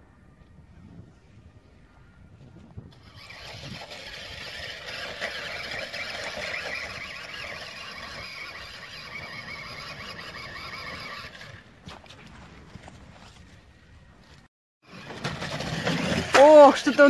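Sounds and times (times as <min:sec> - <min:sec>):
toy car electric motor whining: 0:02.9 - 0:11.6.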